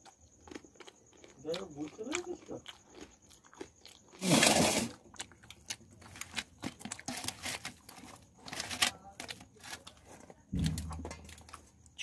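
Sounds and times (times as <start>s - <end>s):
crisp shells crackling: 4.0s - 12.0s.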